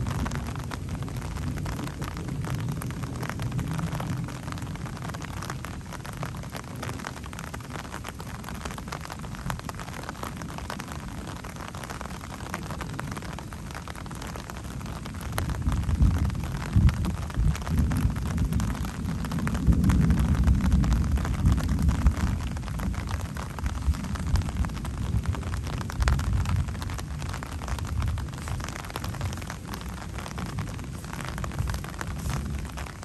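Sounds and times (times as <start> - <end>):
steady rain hiss: 0.0 - 33.0
thunder rumbling: 14.6 - 33.0.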